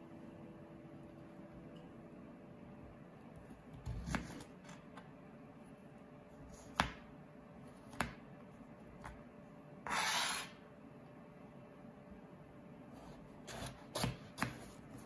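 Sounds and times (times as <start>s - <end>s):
knife scraping board: 9.8s - 10.6s, 13.1s - 14.8s.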